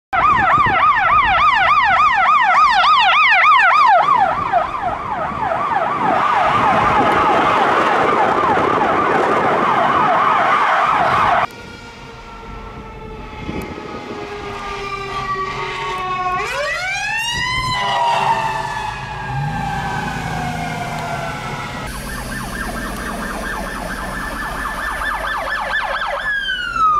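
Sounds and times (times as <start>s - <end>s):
emergency siren yelping: 0.2s - 26.9s
slower siren: 0.2s - 26.9s.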